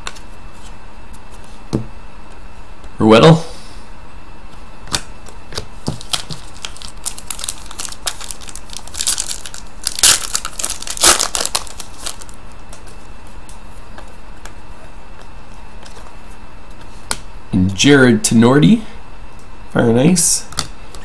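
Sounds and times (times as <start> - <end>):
card pack wrappers crinkling: 5.8 - 12.4
cards rustling: 5.8 - 13.0.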